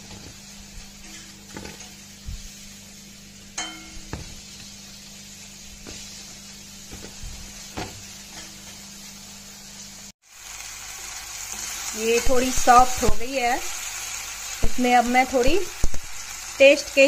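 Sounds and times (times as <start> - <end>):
oven hum and hiss: 0.0 - 17.0
sharp metallic clink: 3.6 - 4.0.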